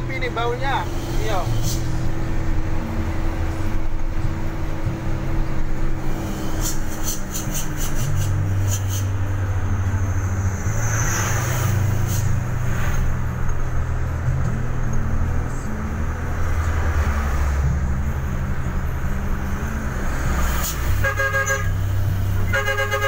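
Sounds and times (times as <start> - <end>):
car engine and road noise: 0.0 - 23.0
passing truck hiss: 0.6 - 2.3, 5.9 - 13.2.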